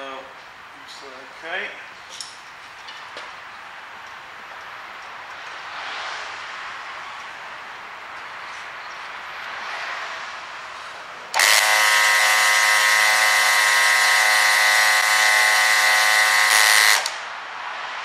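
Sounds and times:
faint background noise: 0.0s - 11.4s
electric pump whining: 11.3s - 17.2s.

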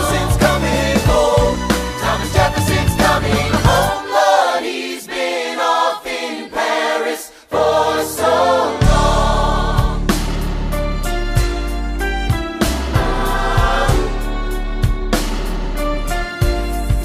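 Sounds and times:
band accompaniment: 0.0s - 4.1s, 8.2s - 17.0s
choir singing: 0.0s - 10.2s, 12.8s - 14.7s.

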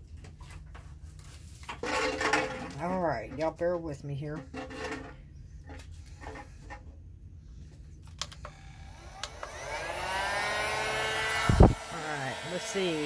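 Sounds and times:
heat gun fan whine and air rush: 8.2s - 13.0s.

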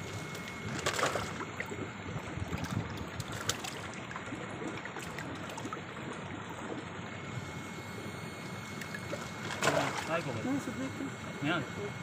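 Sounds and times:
water splashing in a basin: 0.3s - 6.8s, 8.8s - 10.2s.

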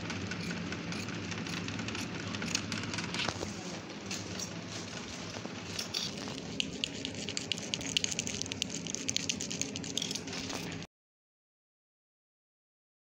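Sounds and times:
tracing wheel clicking over paper: 5.8s - 10.8s.

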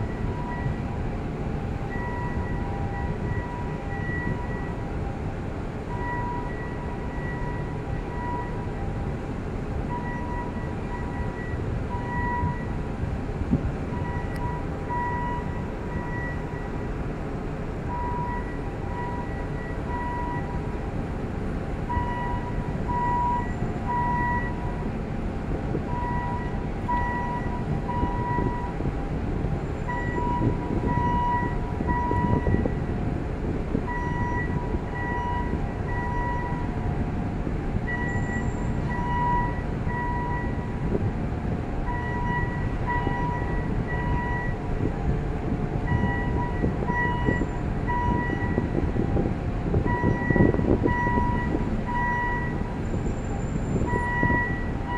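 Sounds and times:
low rumble of machinery: 0.0s - 54.9s
electronic warning beeps: 21.9s - 24.7s, 25.9s - 28.7s, 29.9s - 32.8s, 33.9s - 36.7s, 37.9s - 40.7s, 41.9s - 44.6s, 45.9s - 48.7s, 49.9s - 52.6s, 53.8s - 54.9s.

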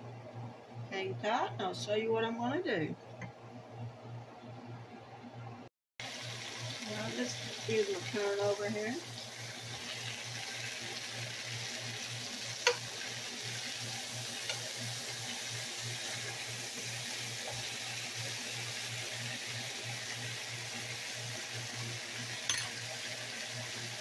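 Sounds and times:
meat sizzling in hot fat: 6.0s - 24.0s
fork clinking against pan: 22.5s - 22.8s.

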